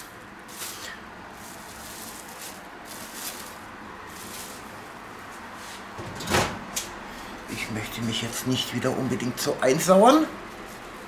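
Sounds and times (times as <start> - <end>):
plastic wrap rustling and crinkling: 0.0 - 5.9.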